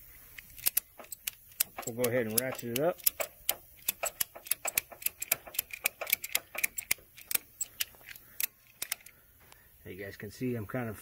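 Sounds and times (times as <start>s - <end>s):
ratchet strap clicking: 0.4s - 9.1s.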